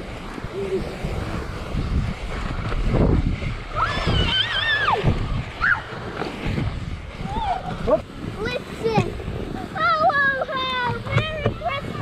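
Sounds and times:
bike tyre rolling through snow: 0.0 - 12.0
wind buffeting microphone: 0.0 - 12.0
child squealing: 3.8 - 5.8.

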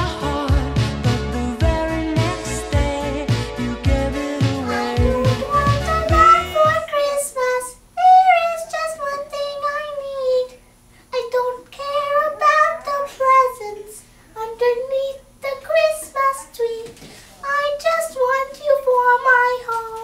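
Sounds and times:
girl singing unaccompanied: 4.1 - 20.0.

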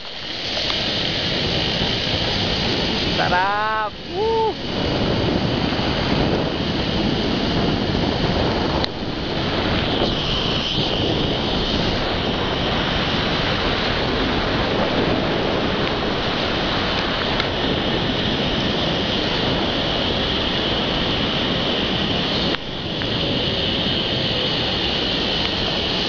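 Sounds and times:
wind rushing on microphone: 0.0 - 26.0.

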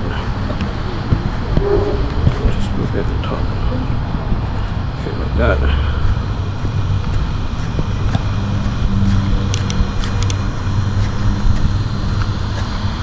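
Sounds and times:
low engine rumble: 0.0 - 13.0.

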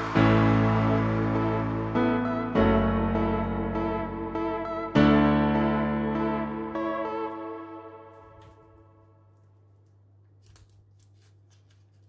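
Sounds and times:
keyboard sustained chords: 0.0 - 9.2.

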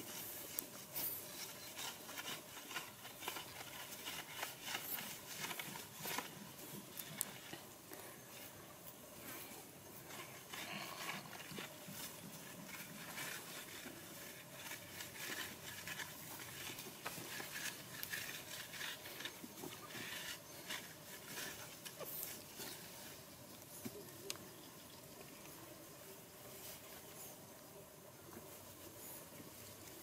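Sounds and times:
hand scraping loose earth: 0.0 - 24.0.

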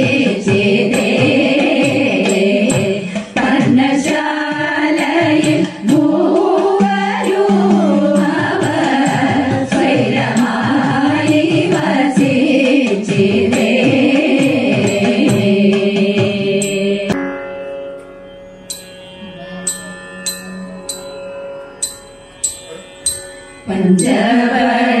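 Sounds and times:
women singing together: 0.0 - 17.2, 23.7 - 25.0.

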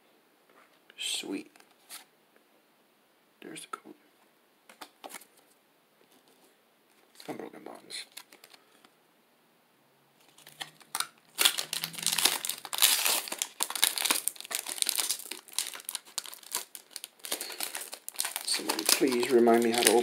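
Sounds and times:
wrapper crinkling and tearing: 8.0 - 8.6, 10.2 - 20.0.

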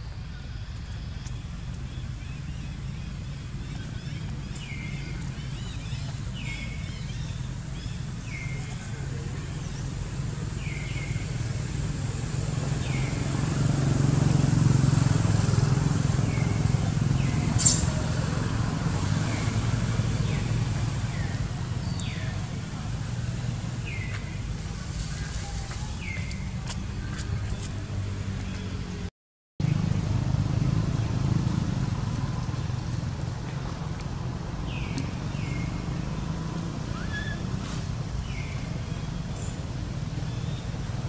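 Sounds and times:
sharp click: 17.6 - 18.0.

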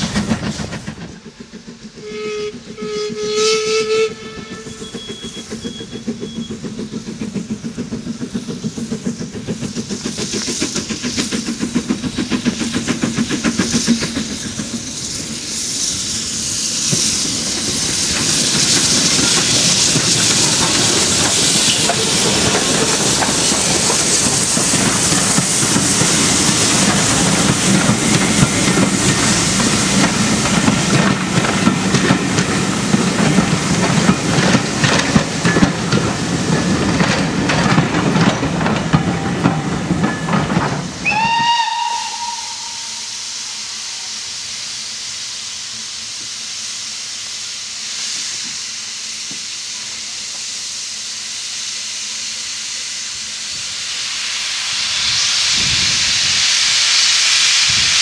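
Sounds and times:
railway coaches clattering over joints: 0.0 - 3.2, 4.0 - 45.0
steam locomotive hissing: 0.0 - 58.0
steam whistle blast: 2.0 - 6.4, 41.0 - 44.4.

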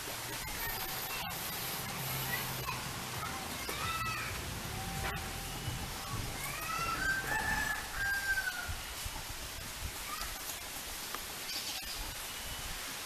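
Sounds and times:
outdoor hiss: 0.0 - 13.0
rooster crowing: 6.6 - 8.9.

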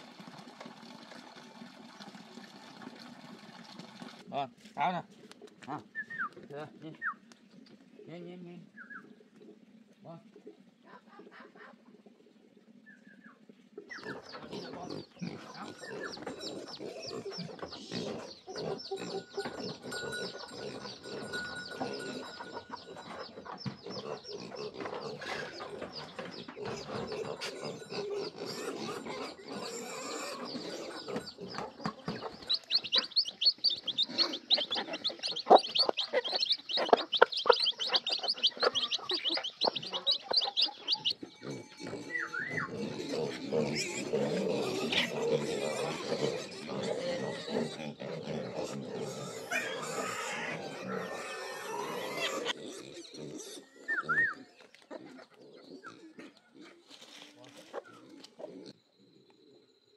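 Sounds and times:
chickens calling: 12.9 - 58.5
chicks peeping: 13.9 - 27.6, 29.9 - 42.9
piglets calling: 13.9 - 56.7.

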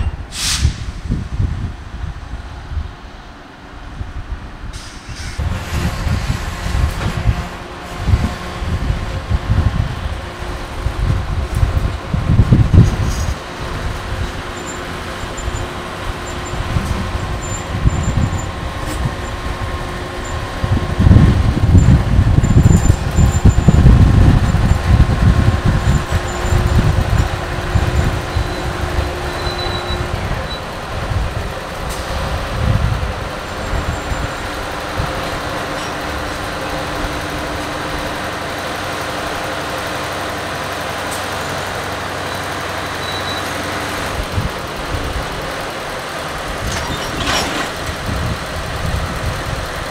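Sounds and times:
diesel locomotive engine rumbling: 0.0 - 49.9.

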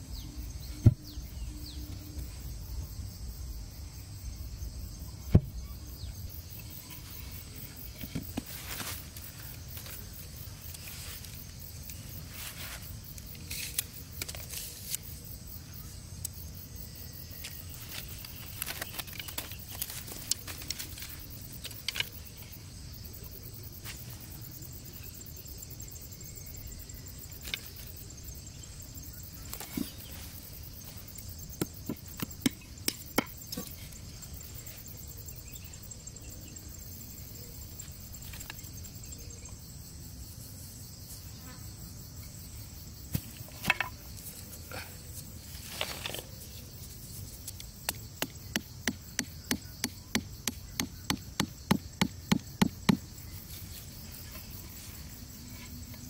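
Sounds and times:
insects trilling: 0.0 - 56.0
bamboo sticks knocking and clicking: 13.1 - 15.0, 17.5 - 22.3, 27.4 - 27.9, 31.6 - 33.8, 43.1 - 44.4, 47.4 - 53.1.

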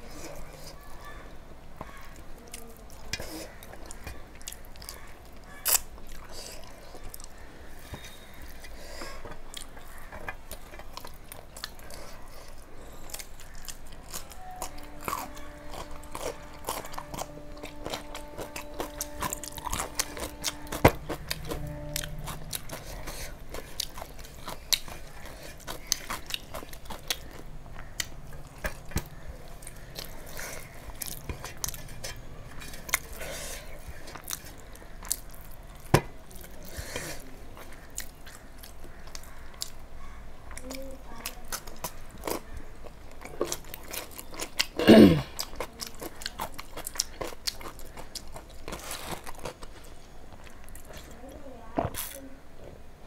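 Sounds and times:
chewing and crunching: 0.0 - 52.3
steady droning tone: 14.3 - 24.4.

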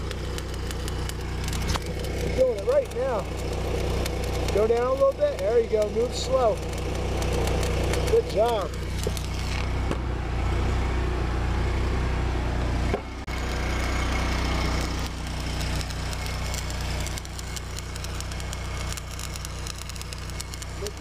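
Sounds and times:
welding arc crackling and hissing: 0.0 - 9.9, 13.2 - 21.0
low hum: 0.0 - 21.0.

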